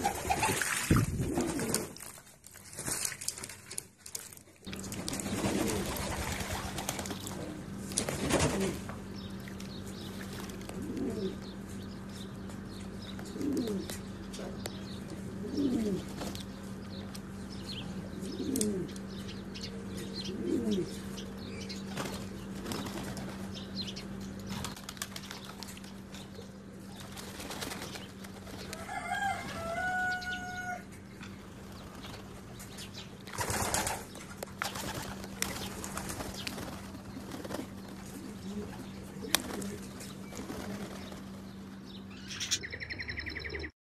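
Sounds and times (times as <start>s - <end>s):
pigeon coos: 0.0s - 2.0s, 10.7s - 11.5s, 13.2s - 14.5s, 15.2s - 16.2s, 18.1s - 19.0s, 20.2s - 21.0s, 38.0s - 40.9s
wings beating and splashing: 0.0s - 10.8s, 24.5s - 26.1s, 26.9s - 30.0s, 33.2s - 41.4s
steady low hum: 4.6s - 43.7s.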